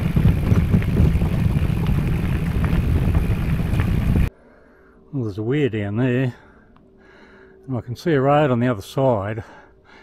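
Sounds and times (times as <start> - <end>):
bike and trailer rattling: 0.0 - 4.3
tyres rumbling on gravel: 0.0 - 4.3.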